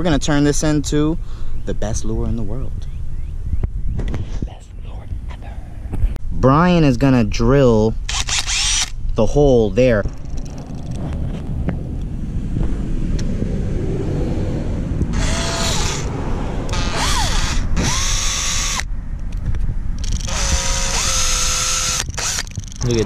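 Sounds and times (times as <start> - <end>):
steady low rumble: 0.0 - 23.0
cordless drill whining: 8.1 - 8.9, 15.2 - 16.1, 16.7 - 18.9, 20.0 - 22.8.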